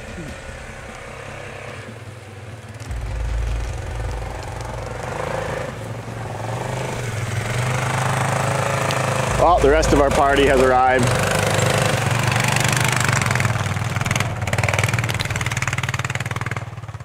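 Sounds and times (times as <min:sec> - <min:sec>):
atv engines running: 0:00.0 - 0:17.0.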